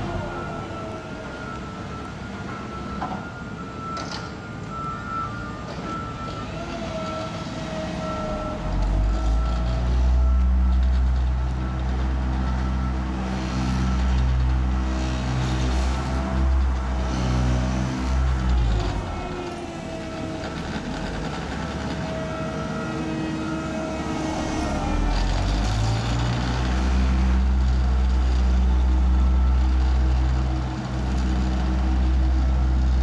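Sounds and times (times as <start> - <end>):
reversing alarm beeping: 0.0 - 32.6
asphalt roller diesel engine: 0.0 - 33.0.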